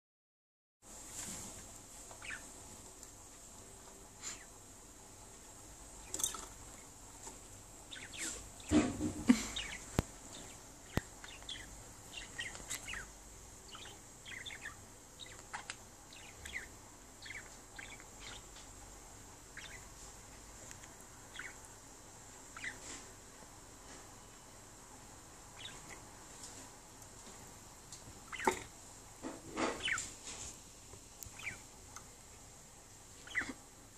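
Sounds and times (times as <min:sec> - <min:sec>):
budgerigars chirping: 0:02.2 - 0:02.5, 0:07.9 - 0:08.9, 0:09.5 - 0:18.6, 0:19.5 - 0:19.9, 0:21.2 - 0:21.6, 0:22.5 - 0:22.9, 0:25.5 - 0:26.1, 0:28.2 - 0:28.7, 0:29.6 - 0:30.1, 0:31.3 - 0:31.7, 0:33.2 - 0:33.6.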